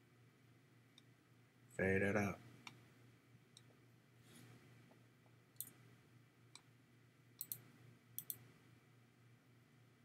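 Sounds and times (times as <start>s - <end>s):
faint low hum: 0.0s - 10.0s
computer mouse clicking: 5.6s - 5.8s, 7.4s - 8.5s.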